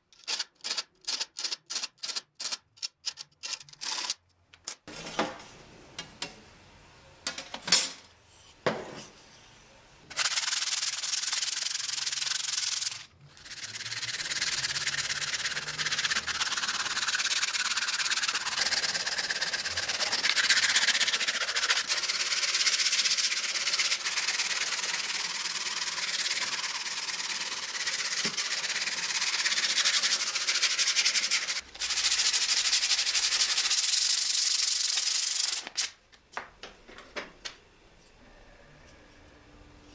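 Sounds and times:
sandpaper rubbing on wood: 0:10.1 - 0:35.6.

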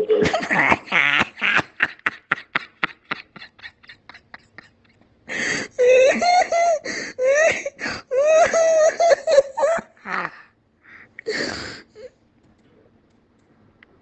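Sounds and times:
person laughing: 0:00.0 - 0:10.5
wheezing gasping breaths: 0:05.3 - 0:05.8, 0:06.8 - 0:08.1, 0:10.8 - 0:12.2.

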